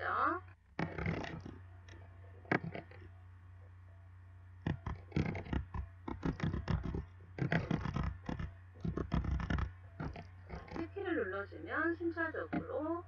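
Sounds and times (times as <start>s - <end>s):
low electrical hum: 0.0s - 13.0s
keyboard typing: 0.8s - 3.0s, 4.6s - 10.9s.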